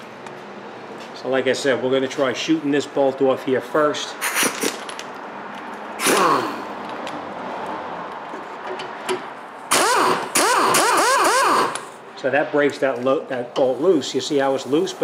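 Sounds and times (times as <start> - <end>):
air impact wrench hammering: 6.0 - 6.7, 9.7 - 12.0.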